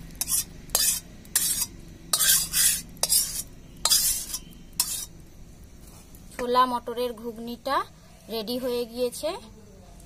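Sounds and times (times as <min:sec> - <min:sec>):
metal spatula scraping pan: 0:00.2 - 0:05.1.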